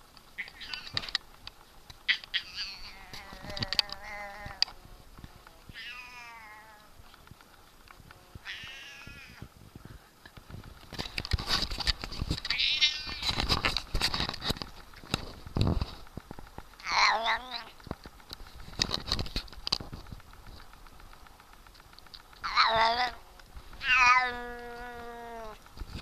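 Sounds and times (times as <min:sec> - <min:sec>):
rustling: 0:00.0 - 0:26.0
cat yowling: 0:02.1 - 0:04.6, 0:05.7 - 0:06.9, 0:08.4 - 0:09.4, 0:16.8 - 0:17.7, 0:22.4 - 0:23.2, 0:23.8 - 0:25.6
sharp clicks: 0:10.2 - 0:24.8.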